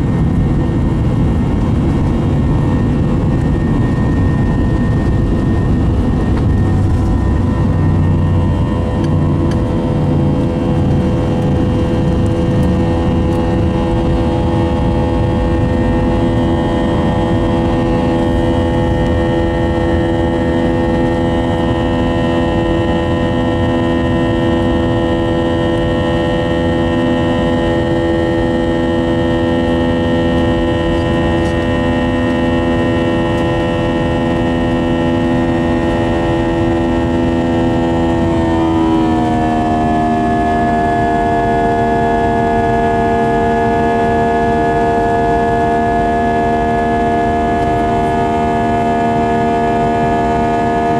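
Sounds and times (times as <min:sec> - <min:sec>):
low rumble: 0:00.0 - 0:23.2
jet engine buzzsaw drone: 0:00.0 - 0:50.9.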